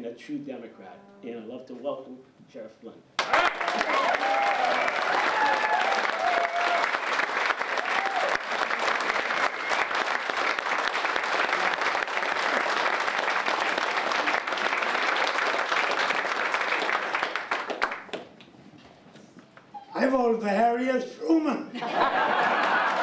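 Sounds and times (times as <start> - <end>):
crowd applauding: 3.2 - 18.4, 22.1 - 23.0.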